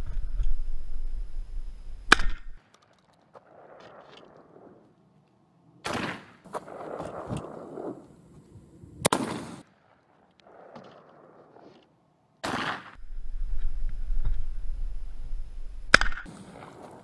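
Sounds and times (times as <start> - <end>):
wind on microphone: 0.0 - 2.6, 13.0 - 17.0
shotgun shots: 2.1 - 2.6, 5.8 - 8.0, 9.0 - 11.4, 12.4 - 13.0, 15.9 - 16.6.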